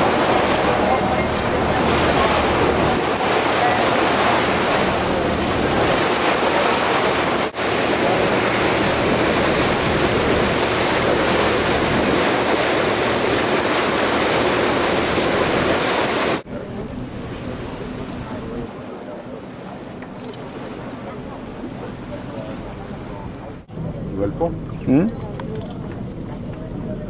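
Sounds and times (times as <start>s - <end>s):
wind buffeting microphone: 0.0s - 16.4s
water rushing past boat: 0.0s - 27.0s.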